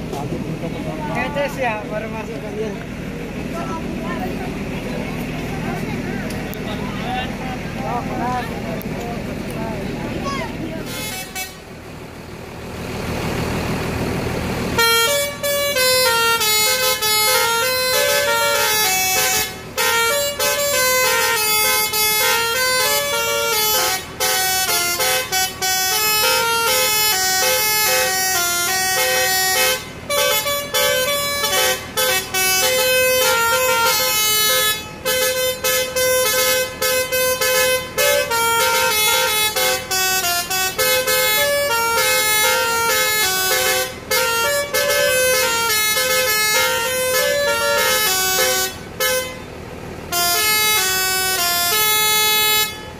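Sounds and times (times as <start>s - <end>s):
musical air horn playing a tune: 10.8s - 11.7s, 14.8s - 49.5s, 50.1s - 52.9s.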